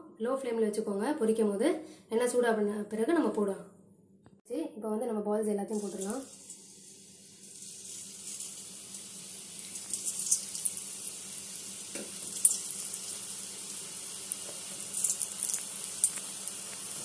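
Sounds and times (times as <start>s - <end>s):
dough deep-frying in hot oil: 5.6s - 17.0s.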